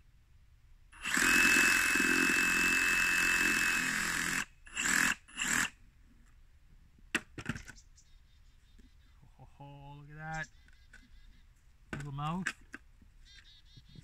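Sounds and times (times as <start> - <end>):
reciprocating saw whining: 1.0 - 5.8.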